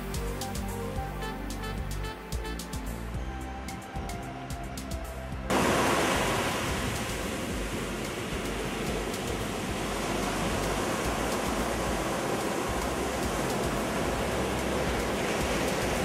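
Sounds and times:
surf breaking on a beach: 5.5 - 16.0.

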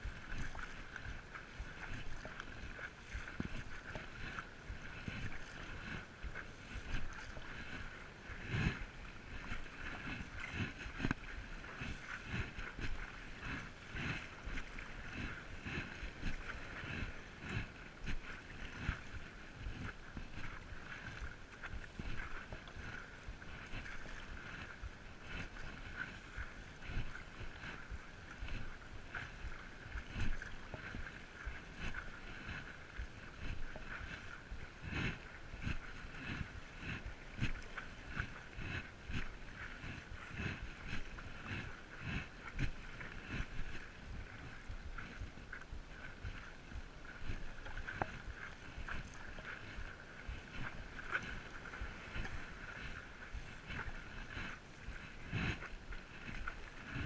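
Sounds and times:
water lapping and splashing: 0.0 - 57.0.

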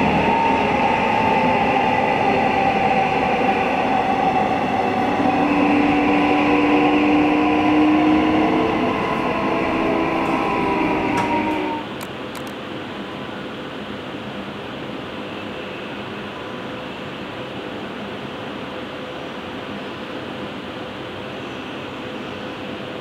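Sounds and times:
train motor whine: 0.0 - 12.1
subway train running rumble: 0.0 - 23.0.

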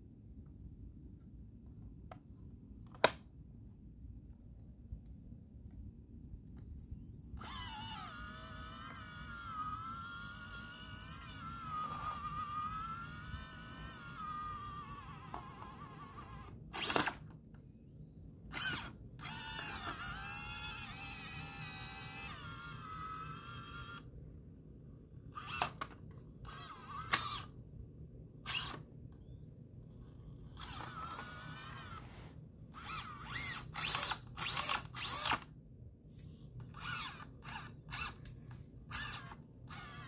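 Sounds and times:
electric motor whining: 7.4 - 17.3, 18.5 - 24.2, 25.3 - 27.6, 28.4 - 29.3, 30.0 - 35.5, 36.7 - 38.3, 38.9 - 40.0.

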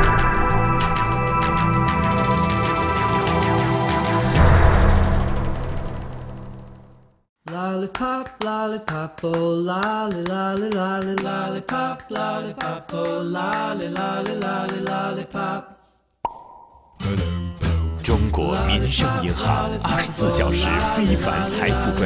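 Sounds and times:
music sting: 0.0 - 7.0
person singing with accompaniment: 17.0 - 22.0.

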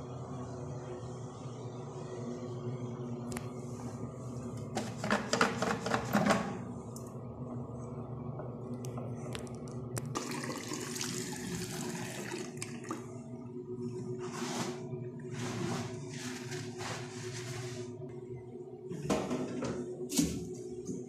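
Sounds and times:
faucet running water into sink: 10.2 - 12.8.

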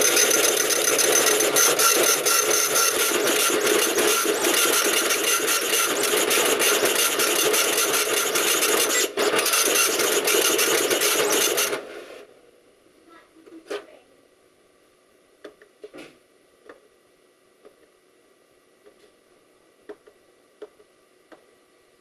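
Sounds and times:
dot matrix printer buzzing rasp: 0.0 - 11.9.

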